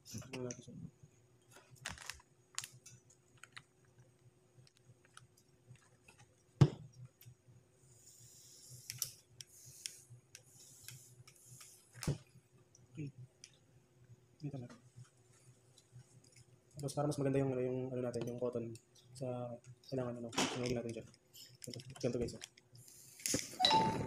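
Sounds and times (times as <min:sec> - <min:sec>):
vape hissing in pulses: 0:09.5 - 0:11.7.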